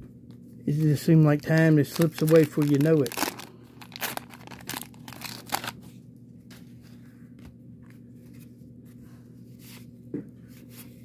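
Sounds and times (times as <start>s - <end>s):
low steady hum: 0.0s - 11.0s
cardboard cards rustling and sliding: 0.7s - 5.9s
wax-paper wrapper crinkling: 0.7s - 5.9s.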